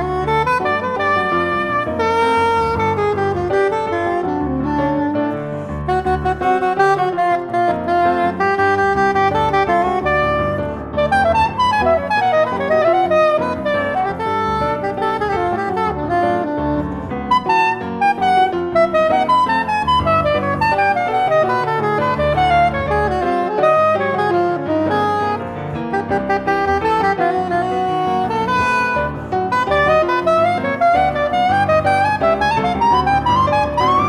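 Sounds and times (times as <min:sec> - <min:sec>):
piano accompaniment: 0:00.0 - 0:34.0
soprano saxophone jazz solo: 0:00.0 - 0:34.0.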